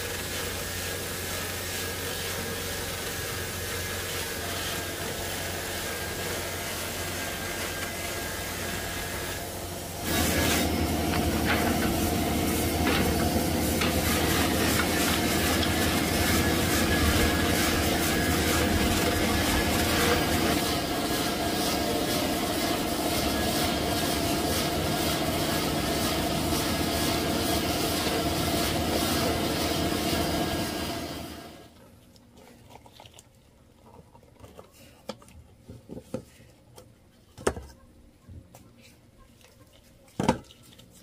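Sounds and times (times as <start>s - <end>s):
machine motor rattling: 10.0s - 30.6s.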